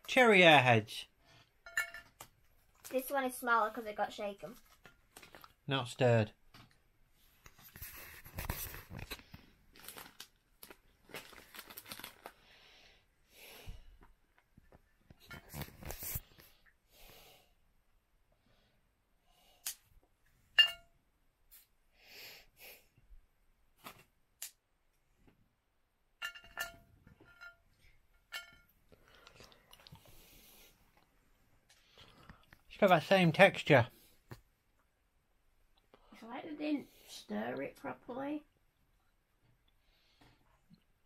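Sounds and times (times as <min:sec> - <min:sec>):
sweet wrapper rustling and tearing: 0:08.2 - 0:12.4
chewing and mouth sounds: 0:29.0 - 0:30.2.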